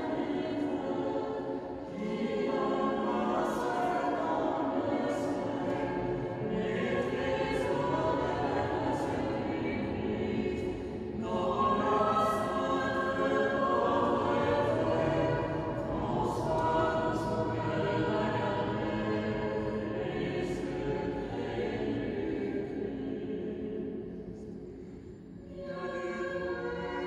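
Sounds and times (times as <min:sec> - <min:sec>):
choir chanting: 0:00.0 - 0:27.0.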